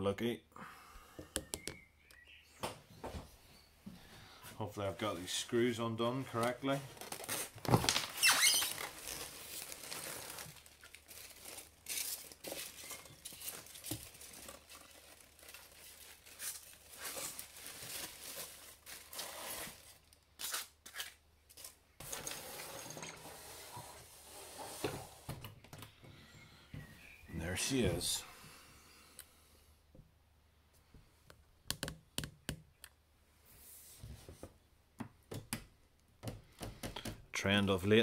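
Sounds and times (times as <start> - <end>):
tissue paper rustling: 6.3 - 20.6
foam packing scraping: 6.4 - 20.6.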